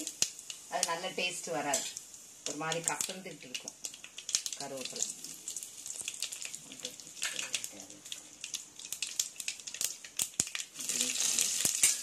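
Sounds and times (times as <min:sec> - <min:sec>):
hot oil sizzling in pan: 0:00.0 - 0:12.0
seeds crackling and popping: 0:00.0 - 0:12.0.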